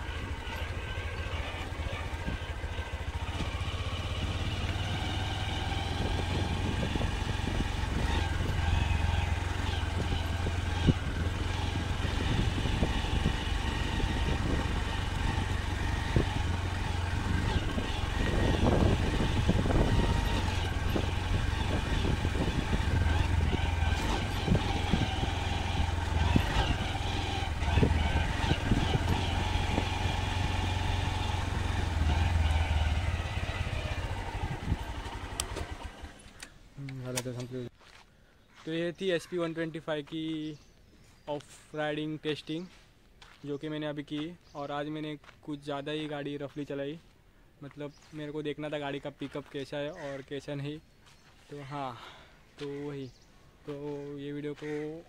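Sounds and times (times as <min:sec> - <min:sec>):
motorcycle engine running: 0:00.0 - 0:37.1.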